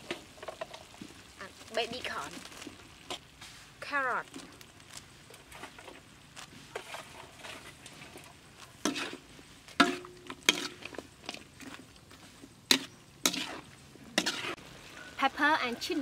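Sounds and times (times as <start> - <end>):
food sizzling in wok: 0.0 - 16.0
spatula knocking metal wok: 9.8 - 10.8.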